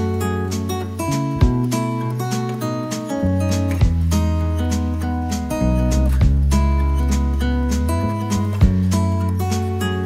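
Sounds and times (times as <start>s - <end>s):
acoustic guitar music: 0.0s - 10.0s.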